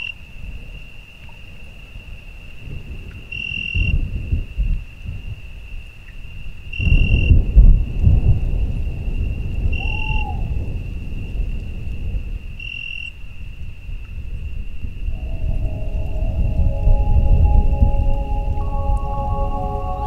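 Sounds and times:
rolling thunder rumble: 6.8s - 12.5s
sustained music notes: 15.2s - 20.0s.

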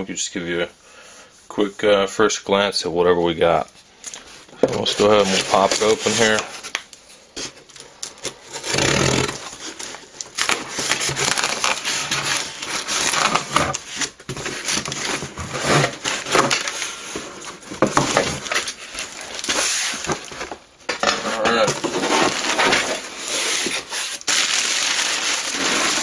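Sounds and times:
cardboard scraping and rubbing: 4.6s - 6.7s, 8.4s - 26.0s
knife slitting packing tape: 7.8s - 17.0s, 21.8s - 26.0s.

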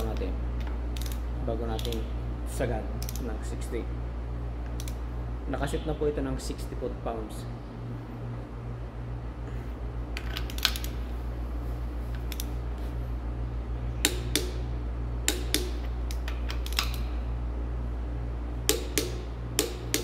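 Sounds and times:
steady low hum: 0.0s - 20.0s
torque wrench clicking: 0.1s - 2.0s, 4.7s - 5.0s.

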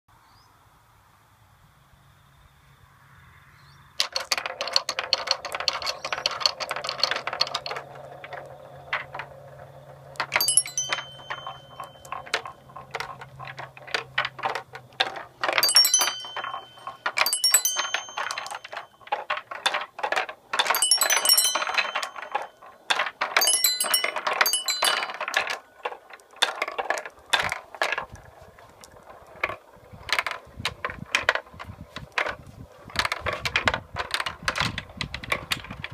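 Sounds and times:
marbles clicking on wood: 4.0s - 35.9s
marbles rumbling along wooden tracks: 4.0s - 35.9s
metal chime plates ringing: 10.3s - 12.2s, 15.6s - 19.0s, 20.7s - 22.6s, 23.4s - 25.2s.

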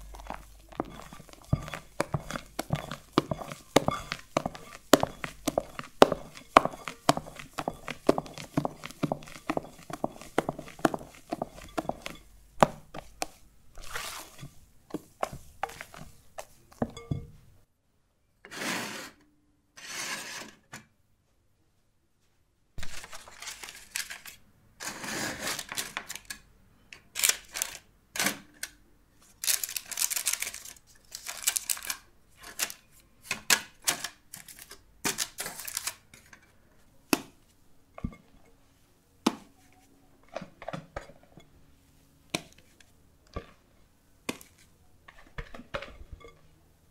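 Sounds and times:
parchment paper rustling: 0.0s - 16.9s, 22.8s - 24.4s, 29.2s - 33.0s, 34.3s - 36.3s
spatula tapping glass bowl: 0.0s - 17.4s
spatula folding batter squelches: 0.0s - 17.5s, 29.2s - 46.9s.

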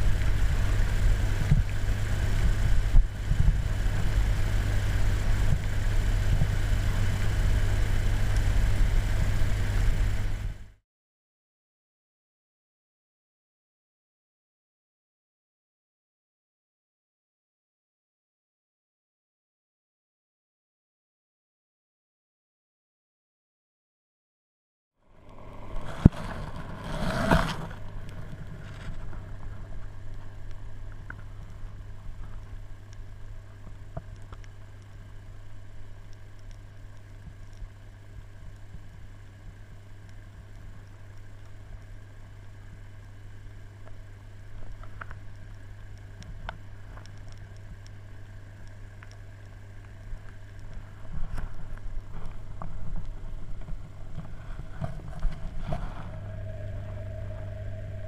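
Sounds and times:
low mechanical hum: 0.0s - 10.8s, 25.0s - 58.0s.

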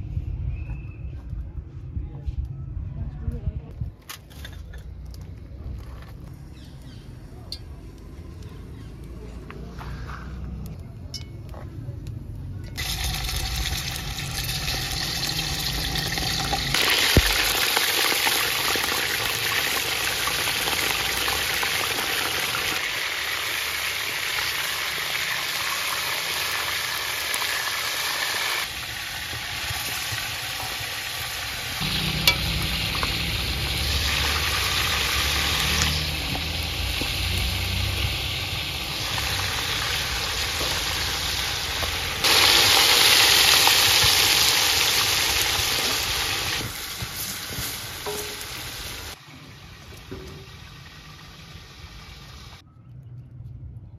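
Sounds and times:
chicken sizzling in hot oil: 12.8s - 52.6s.

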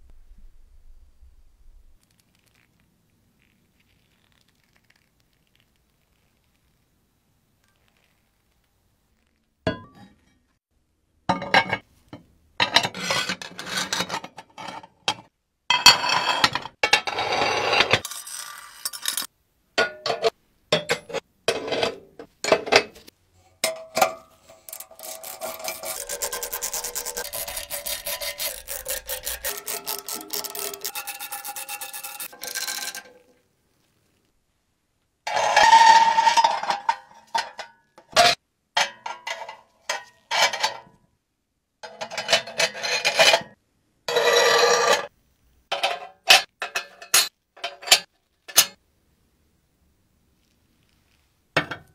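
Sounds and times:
metal scraping and rubbing: 15.9s - 19.3s, 23.6s - 33.4s, 35.3s - 38.4s, 41.8s - 45.1s.

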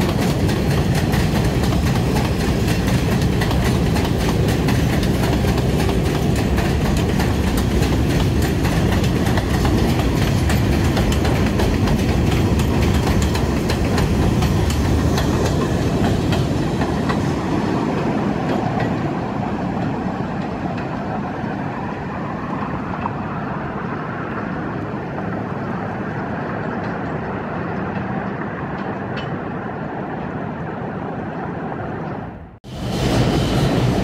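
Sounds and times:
subway train rumbling on rails: 0.0s - 34.0s.

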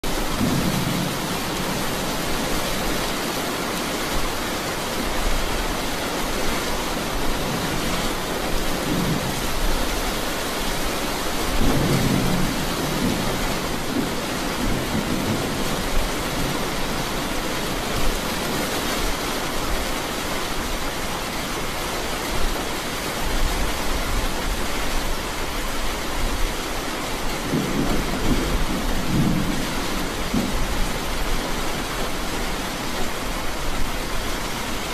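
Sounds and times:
thunder rumbling: 0.0s - 3.3s, 7.3s - 18.5s, 27.3s - 34.9s
steady rain: 0.0s - 34.9s.

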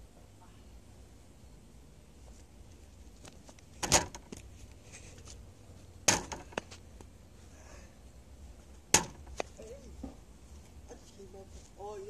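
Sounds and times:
ball struck hard: 8.9s - 9.3s.

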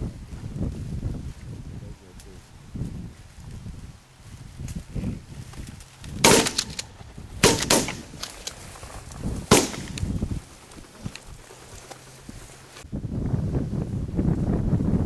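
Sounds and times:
shotgun shots: 6.2s - 8.2s, 9.5s - 10.1s.

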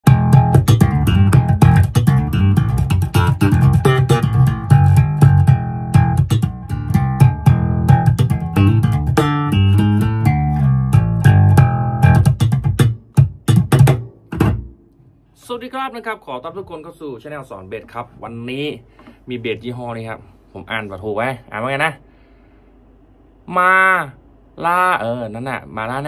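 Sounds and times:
electric bass guitar plucked notes: 0.0s - 14.9s.

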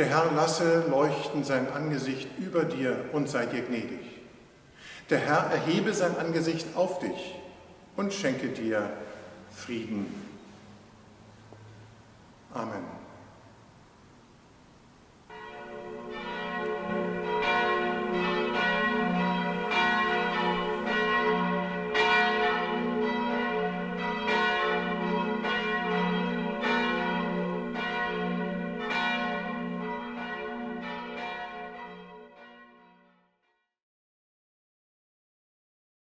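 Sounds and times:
church bells ringing: 0.0s - 3.6s, 15.3s - 33.3s.

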